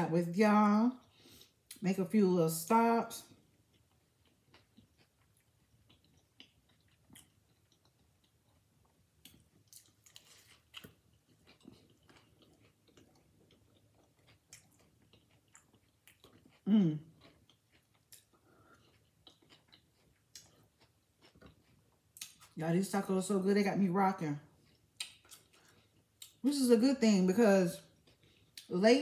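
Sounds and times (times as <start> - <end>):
chewing crunchy taco shell: 3.1 - 22.6, 24.4 - 26.5, 27.8 - 28.8
person humming: 16.7 - 17.0.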